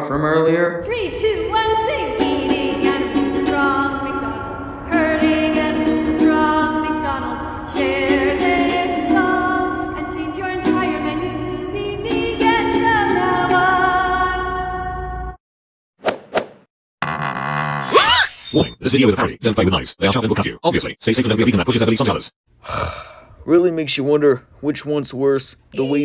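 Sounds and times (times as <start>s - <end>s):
woman singing: 0.8s - 15.0s
strummed ukulele: 4.9s - 7.0s, 7.7s - 13.7s.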